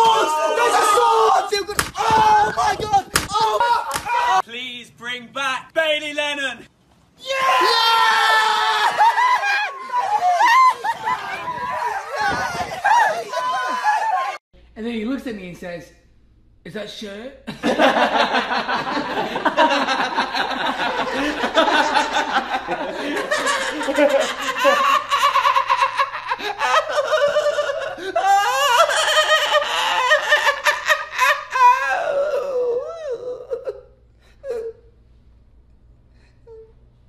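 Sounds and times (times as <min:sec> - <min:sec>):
men laughing loudly: 0:08.5 - 0:14.4, 0:17.5 - 0:31.9.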